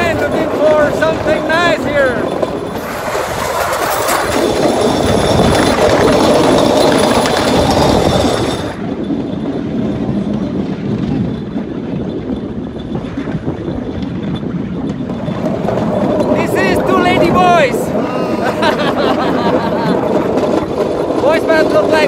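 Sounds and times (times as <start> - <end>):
steel wheels clattering on track: 0.0 - 22.0
small engine running: 1.2 - 16.9.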